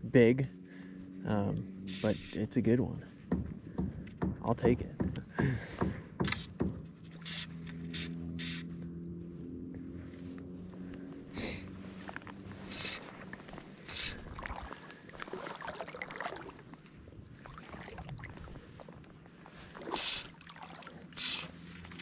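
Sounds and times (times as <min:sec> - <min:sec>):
short swishing bursts: 0:06.3 - 0:08.8, 0:21.2 - 0:22.0
river water gurgling: 0:11.3 - 0:22.0.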